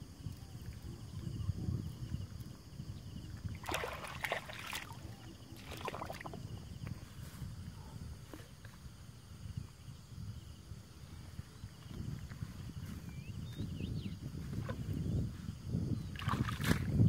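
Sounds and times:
shallow water sloshing: 3.5 - 6.7, 16.1 - 16.9.

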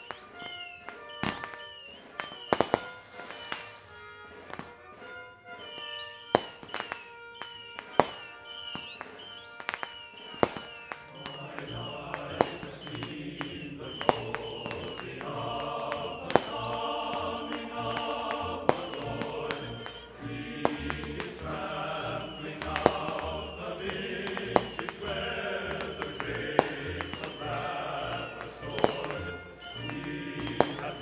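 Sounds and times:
sharp bangs: 0.0 - 31.0
choir singing: 11.0 - 31.0.

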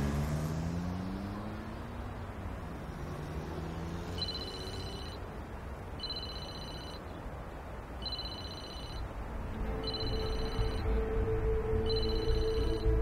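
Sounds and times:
two-tone phone ring: 4.2 - 5.2, 6.0 - 7.0, 8.0 - 9.1, 9.8 - 10.9, 11.8 - 12.9.

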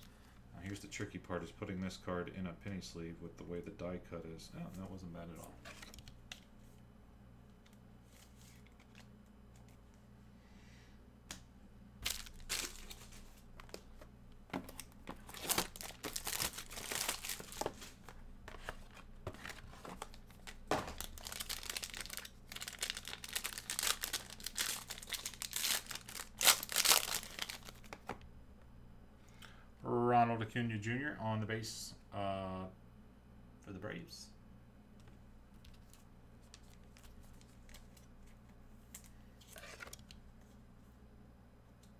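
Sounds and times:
card packaging tearing and crinkling: 12.0 - 13.8, 14.6 - 28.1.

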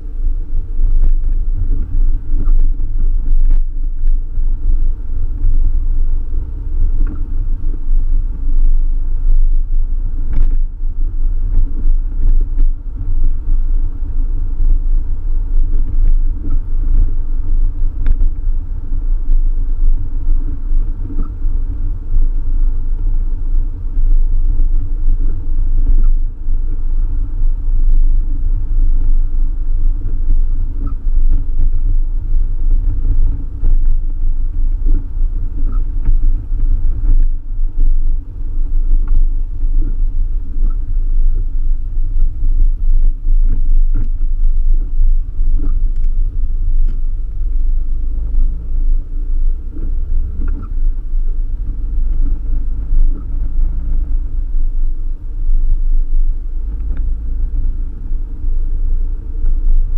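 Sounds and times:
car engine and tyres rumbling: 0.0 - 59.9.

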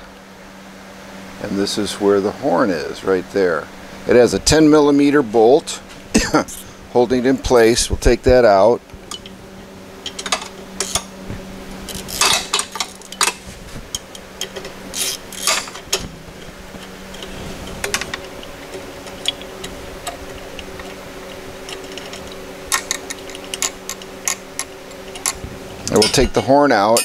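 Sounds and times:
steady low hum: 0.0 - 27.0
metal clinks: 25.1 - 27.0.

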